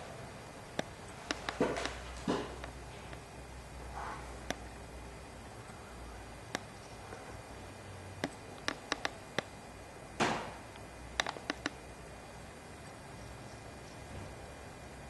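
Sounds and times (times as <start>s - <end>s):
low steady hum: 0.0s - 15.0s
sharp clicks and ticks: 0.7s - 2.0s, 4.4s - 4.7s, 6.4s - 6.8s, 8.2s - 9.6s, 10.7s - 11.8s.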